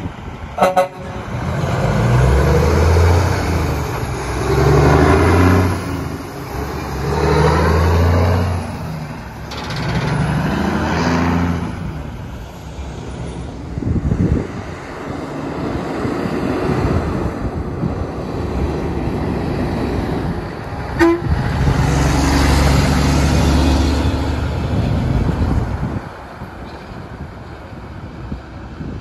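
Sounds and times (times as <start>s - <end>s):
diesel truck driving past: 0.1s - 29.0s
truck horn toot: 0.6s - 1.4s, 21.0s - 21.4s.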